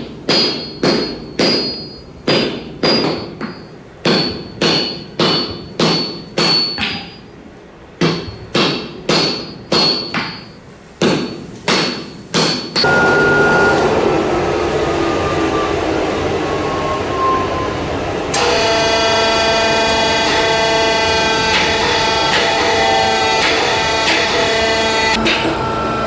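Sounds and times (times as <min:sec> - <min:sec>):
hammer ringing on anvil: 0:00.0 - 0:07.3, 0:08.0 - 0:13.8
power forging press running: 0:08.2 - 0:26.0.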